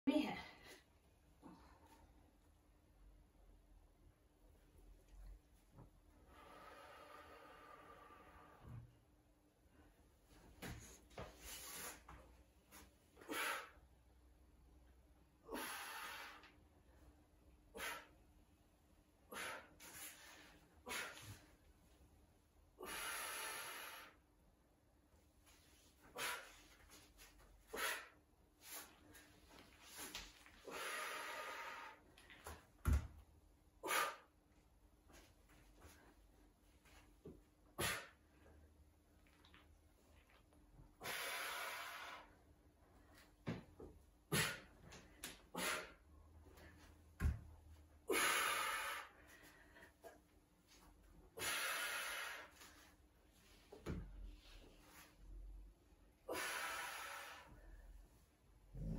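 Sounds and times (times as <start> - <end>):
person breathing hard: 6.2 - 8.8, 15.4 - 16.6, 22.8 - 24.2, 30.6 - 32.2, 48.0 - 50.2, 51.4 - 52.8, 56.2 - 58.0
woman exhaling breathily: 56.2 - 57.8.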